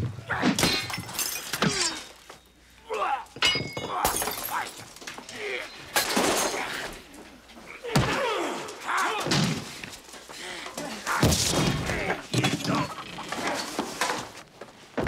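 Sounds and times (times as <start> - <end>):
men grunting and shouting: 2.8 - 13.8.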